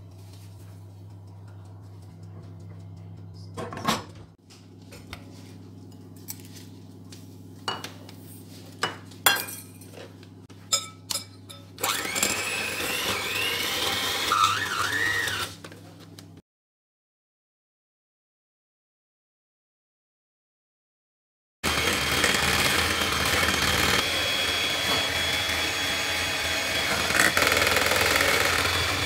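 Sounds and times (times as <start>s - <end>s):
low hum: 0.0s - 8.5s
kitchenware knocks and clinks: 3.6s - 4.2s, 10.7s - 11.8s
electric hand mixer running: 11.8s - 15.6s, 21.6s - 29.0s.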